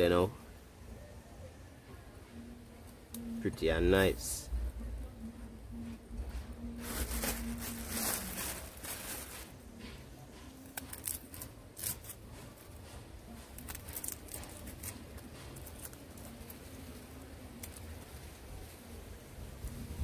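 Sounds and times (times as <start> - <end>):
hands rustling: 6.6 - 10.0.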